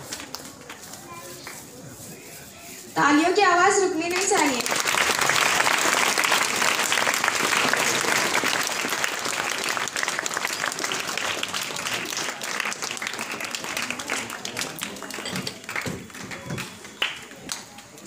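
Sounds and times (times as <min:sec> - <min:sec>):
audience applauding: 0:04.2 - 0:18.0.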